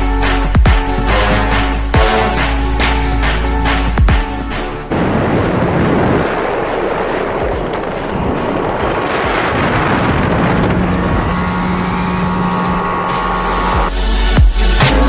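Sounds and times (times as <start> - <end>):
motorboat running: 0.0 - 15.0
wind buffeting microphone: 4.3 - 12.9.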